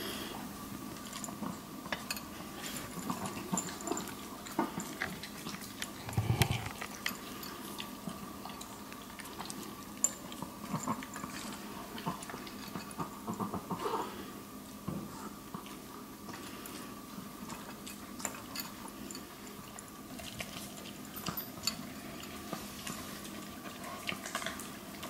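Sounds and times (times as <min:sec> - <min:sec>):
dogs crunching dry kibble: 0:00.8 - 0:14.0, 0:15.0 - 0:25.0
teeth clicking on plastic bowls: 0:05.8 - 0:07.2.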